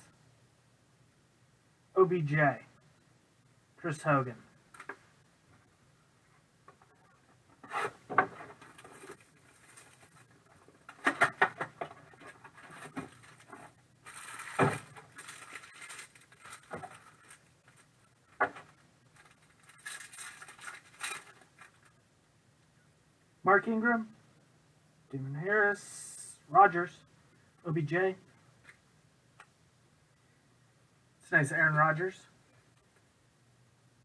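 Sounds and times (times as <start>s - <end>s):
foil wrapper crinkling torn open: 8.6s - 10.2s, 12.6s - 17.9s, 19.1s - 21.9s.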